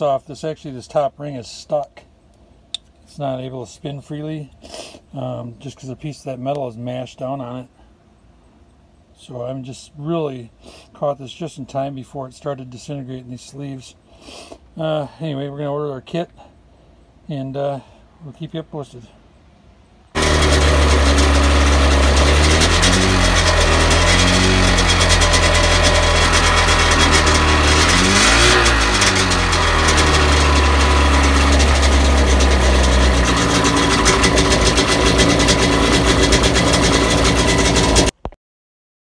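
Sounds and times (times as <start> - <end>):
two-stroke engine revving: 20.2 - 38.1.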